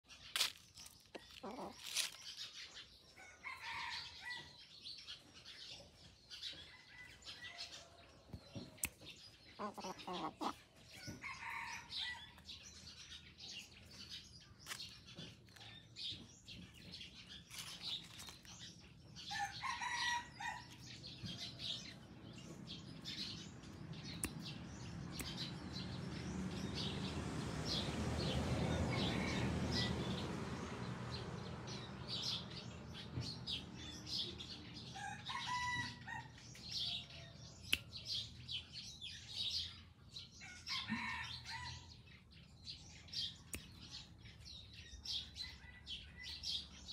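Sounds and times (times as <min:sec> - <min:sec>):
small birds chirping: 0:00.0 - 0:46.9
rooster crowing: 0:19.3 - 0:20.7, 0:28.6 - 0:29.9, 0:34.9 - 0:36.4.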